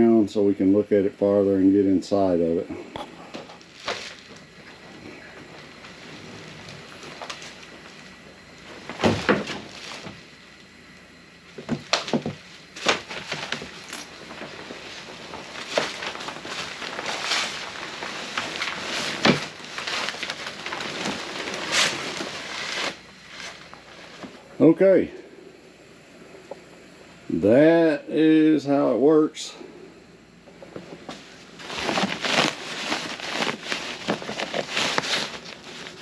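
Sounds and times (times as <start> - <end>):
rustling plastic and fabric: 3.3 - 10.5, 11.5 - 24.6, 30.5 - 36.0.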